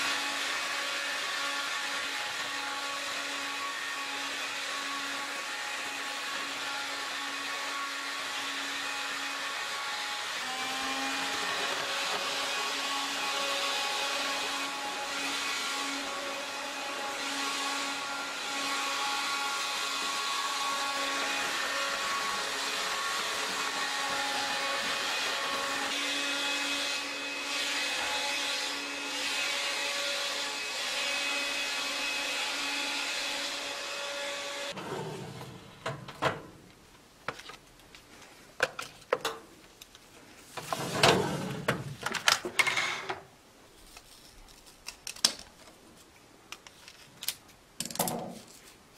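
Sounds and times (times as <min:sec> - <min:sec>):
vacuum cleaner motor whine: 0:00.0 - 0:35.8
plastic clicks and handling: 0:43.9 - 0:45.8, 0:46.5 - 0:48.2.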